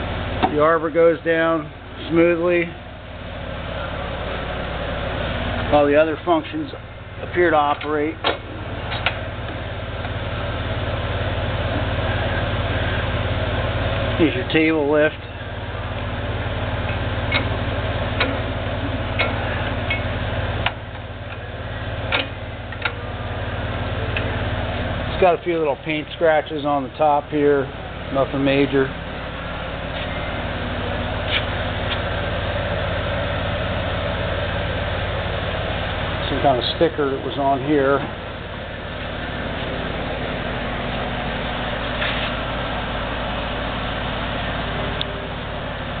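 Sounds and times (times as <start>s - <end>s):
steady low hum: 0.0s - 46.0s
drill press motor humming: 27.8s - 46.0s.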